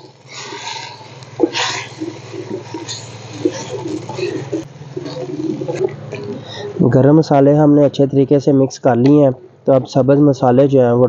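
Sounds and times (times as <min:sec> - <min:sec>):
bird cooing: 0:00.0 - 0:06.9
steady low hum: 0:00.0 - 0:11.0.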